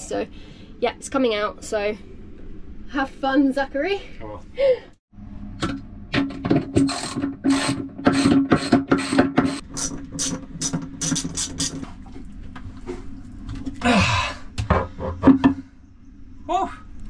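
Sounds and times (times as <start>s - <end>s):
hand tool striking metal fitting: 8.1s - 11.7s.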